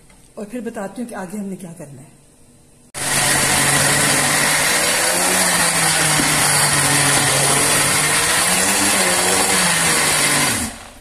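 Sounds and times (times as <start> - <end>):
blender running: 3.0 - 11.0.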